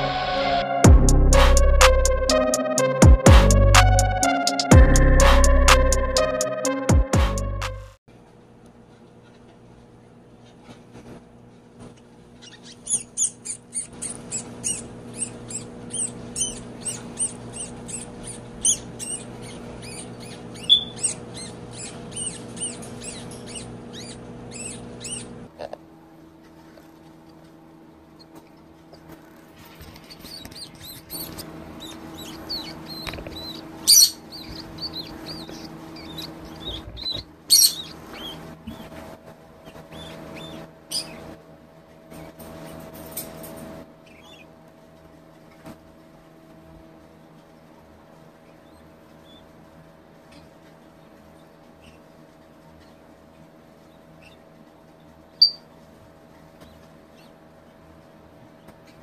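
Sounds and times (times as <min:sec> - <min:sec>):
steady low hum: 0:00.0 - 0:59.0
rat pups squeaking: 0:11.9 - 0:25.7, 0:29.0 - 0:41.4, 0:44.0 - 0:44.6, 0:48.4 - 0:49.6, 0:53.8 - 0:55.7.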